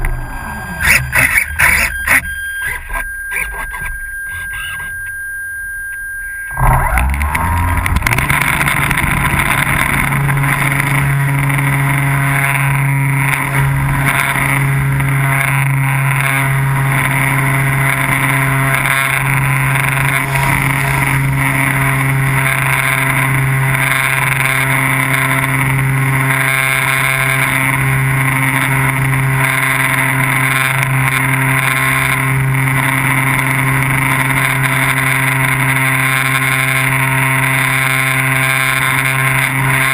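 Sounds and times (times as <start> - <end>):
steady high tone: 0.0 - 25.4
drone motor and propeller: 0.0 - 39.9.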